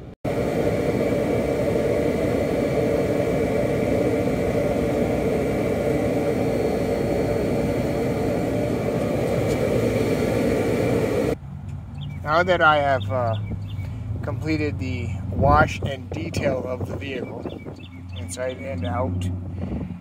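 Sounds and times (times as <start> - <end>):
vacuum cleaner running: 0.0 - 11.4.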